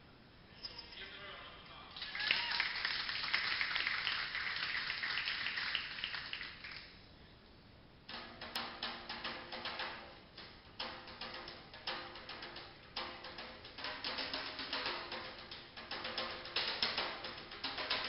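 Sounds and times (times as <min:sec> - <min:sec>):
audience applauding: 0:02.0 - 0:06.9
djembe drum hand strikes: 0:08.1 - 0:18.0.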